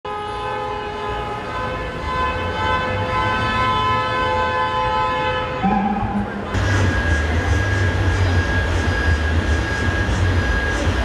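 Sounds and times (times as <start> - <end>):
horn blowing a chord: 0.1 - 8.5
low traffic rumble: 0.1 - 11.0.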